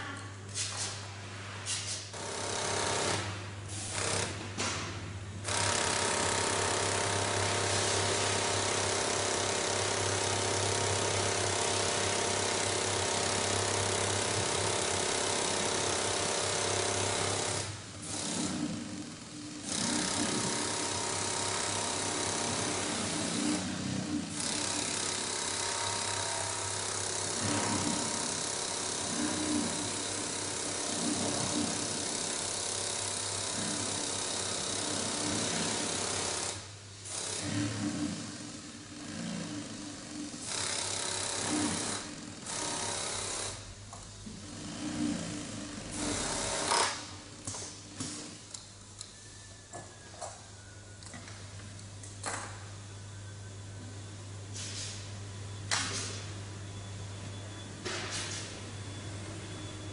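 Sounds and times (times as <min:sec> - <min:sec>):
sewing machine running: 0:02.2 - 0:04.4, 0:05.4 - 0:43.7, 0:44.5 - 0:47.1.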